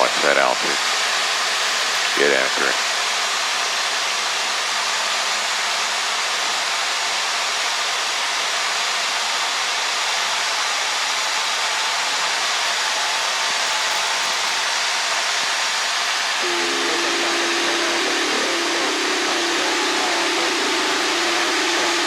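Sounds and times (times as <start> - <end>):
airplane cabin engine noise: 16.4 - 22.0.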